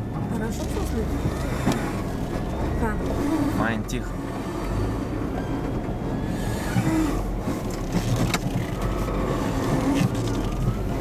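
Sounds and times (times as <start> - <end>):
vehicle engine running low speed: 0.0 - 11.0
vehicle knocks and rattles: 5.1 - 11.0.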